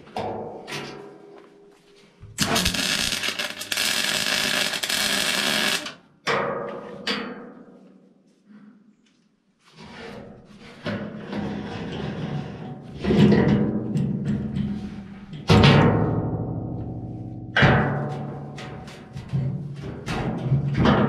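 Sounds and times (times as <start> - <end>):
welding arc buzzing: 2.4 - 6.0.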